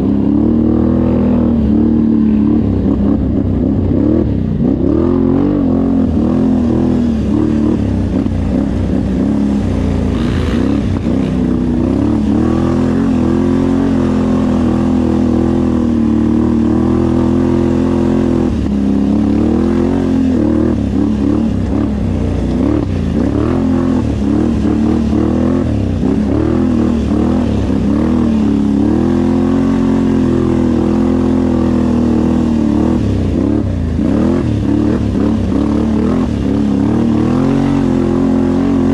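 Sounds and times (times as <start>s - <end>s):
off-road vehicle engine revving: 0.0s - 38.9s.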